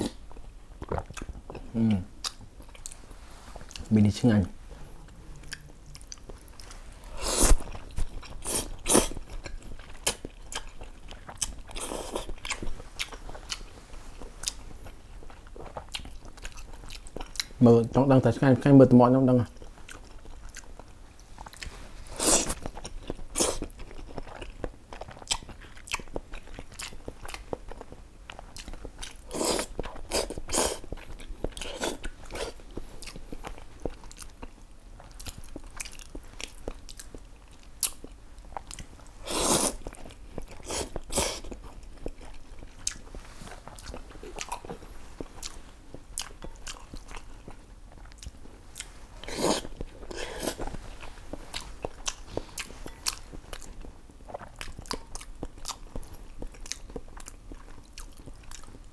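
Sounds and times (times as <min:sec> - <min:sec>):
chewing: 0:00.0 - 0:03.9, 0:05.0 - 0:17.6, 0:19.4 - 0:58.9
slurping noodles: 0:39.2 - 0:39.8, 0:49.3 - 0:50.6.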